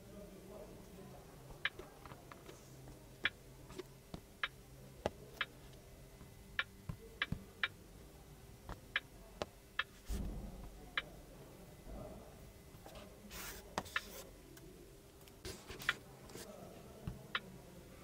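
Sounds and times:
finger tapping touchscreen clicks: 13.8s - 14.2s.

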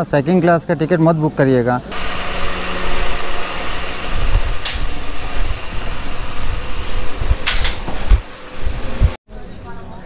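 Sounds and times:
low rumbling thumps: 2.8s - 9.2s.

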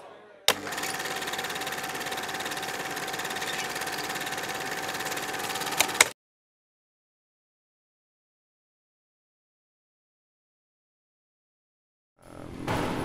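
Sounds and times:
film projector clatter and whine: 0.5s - 6.2s
sharp clicks: 0.5s - 6.2s.

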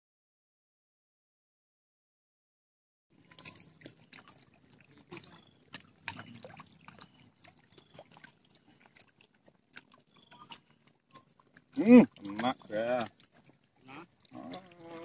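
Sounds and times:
water lapping and trickling: 3.1s - 15.0s.

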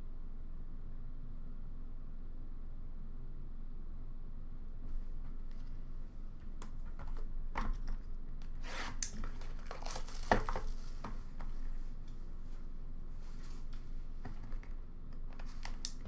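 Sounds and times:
cards rustling and sliding: 6.8s - 11.8s, 13.3s - 16.0s.

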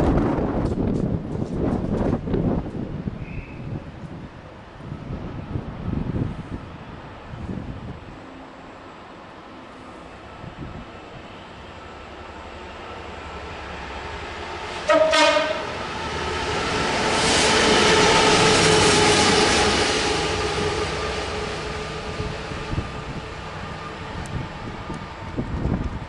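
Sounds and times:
diesel locomotive engine passing: 0.0s - 26.0s
train horn blast: 14.7s - 15.8s.

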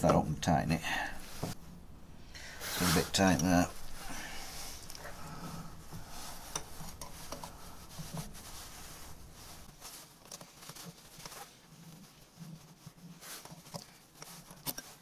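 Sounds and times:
low background hum: 0.0s - 9.9s.

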